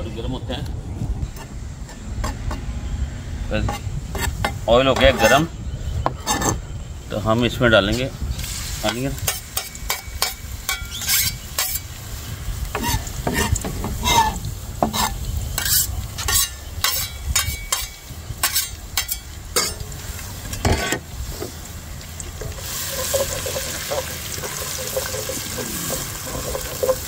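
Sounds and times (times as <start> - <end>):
onion sizzling in hot oil: 8.2 - 27.0.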